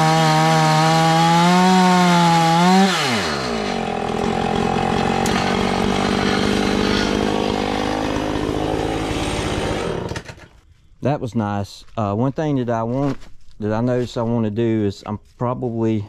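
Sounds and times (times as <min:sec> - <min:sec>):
chainsaw running: 0:00.0 - 0:10.6.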